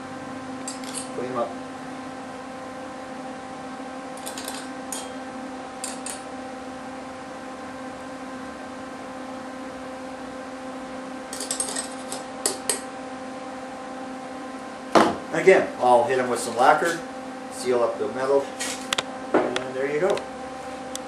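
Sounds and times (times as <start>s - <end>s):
steady hum: 0.0s - 21.0s
wire cutters snipping metal: 0.6s - 1.2s, 4.2s - 5.2s, 5.8s - 6.3s.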